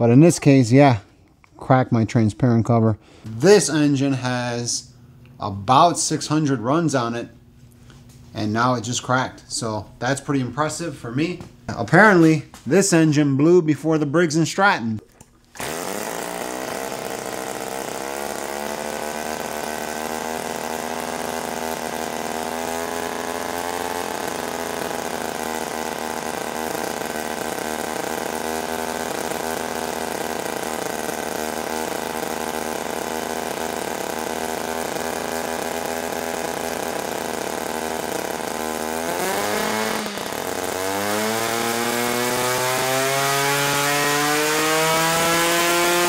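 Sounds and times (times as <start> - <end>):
rotary engine buzzing: 15.5 - 46.0.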